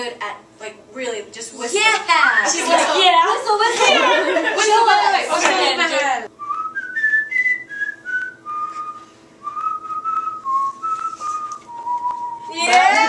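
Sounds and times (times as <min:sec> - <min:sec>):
person whistling a tune: 0:06.4 - 0:12.5.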